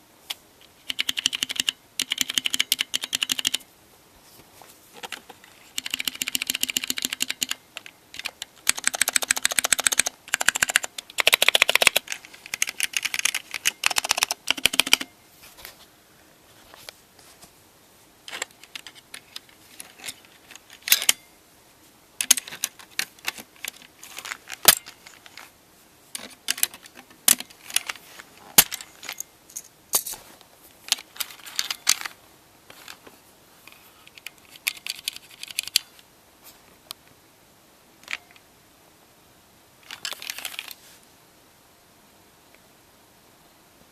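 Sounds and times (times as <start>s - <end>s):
keyboard keystrokes clattering: 0.8s - 3.6s, 5.0s - 15.1s.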